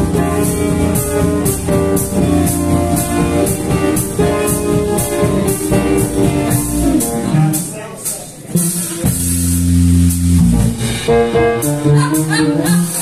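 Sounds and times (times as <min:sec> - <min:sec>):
electric guitar: 0:00.0 - 0:07.7
bass guitar: 0:00.0 - 0:13.0
drum kit with cymbals: 0:00.0 - 0:13.0
keyboard chords: 0:00.0 - 0:13.0.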